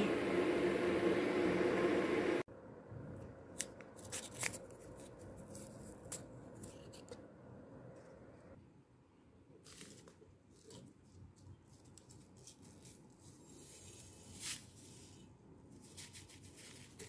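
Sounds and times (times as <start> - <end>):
electric kettle hissing: 0.0 - 2.5
paper sachet tearing: 3.6 - 7.2, 15.8 - 17.0.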